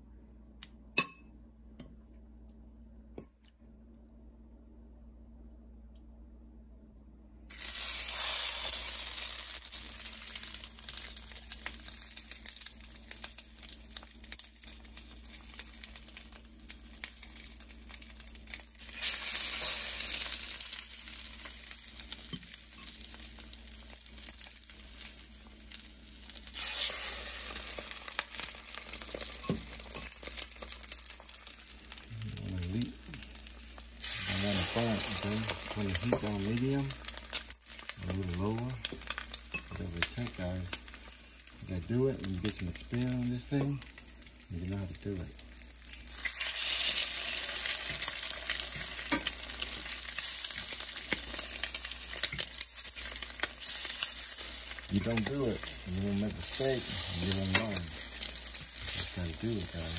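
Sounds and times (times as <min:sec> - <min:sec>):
bread sizzling in hot oil: 0:07.5 - 0:59.9.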